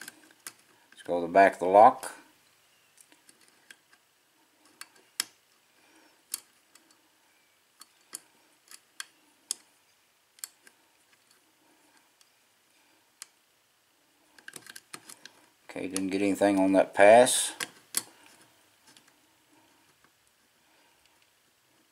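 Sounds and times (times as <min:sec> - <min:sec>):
lock pick metallic clicks: 0:06.2 - 0:07.0, 0:07.8 - 0:09.7, 0:10.4 - 0:11.4, 0:14.4 - 0:15.3, 0:17.5 - 0:18.1.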